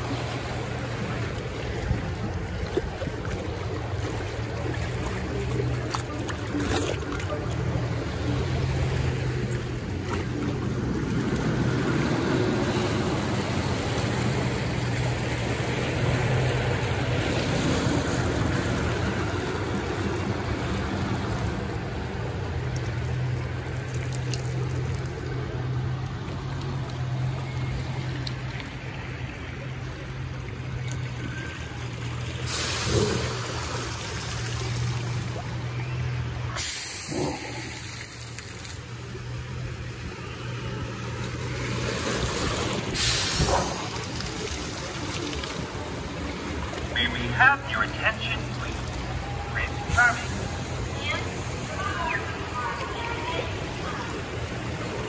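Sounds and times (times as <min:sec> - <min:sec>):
water rushing and churning: 0:00.0 - 0:55.0.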